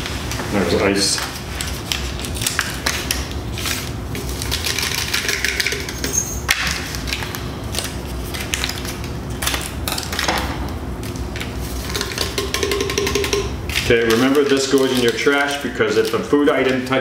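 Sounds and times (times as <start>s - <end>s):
paper packets tearing and crinkling: 0.0s - 5.3s, 6.5s - 10.3s, 13.7s - 17.0s.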